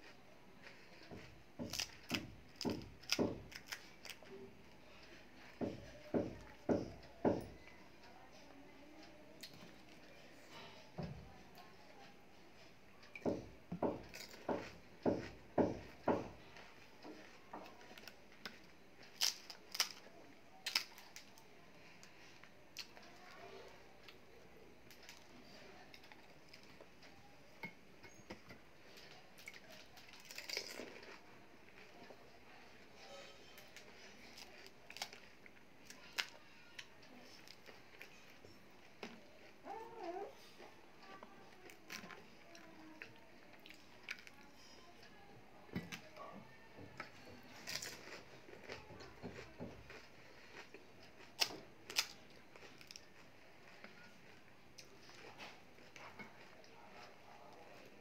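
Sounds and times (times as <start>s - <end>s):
faint eating crunches: 0.0s - 6.5s, 14.0s - 27.3s, 28.7s - 45.2s, 46.9s - 58.0s
crackly handling noise: 0.0s - 7.4s, 13.0s - 32.9s.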